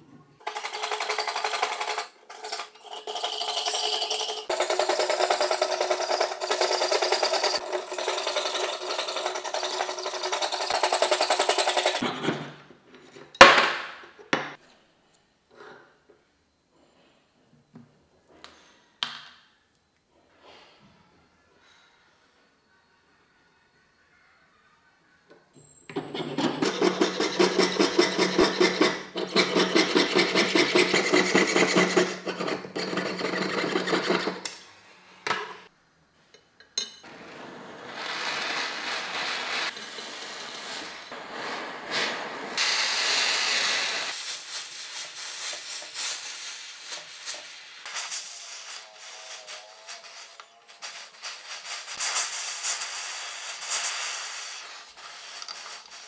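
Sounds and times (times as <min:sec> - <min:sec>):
saw cutting metal sheet: 0:25.9 - 0:34.5
gas torch flame hissing: 0:37.1 - 0:56.0.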